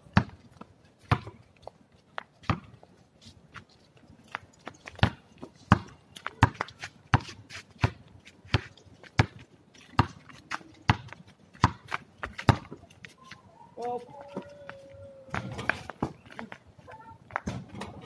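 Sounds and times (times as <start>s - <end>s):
basketball bouncing on concrete: 0.1s - 1.4s, 2.4s - 2.8s, 4.9s - 12.8s.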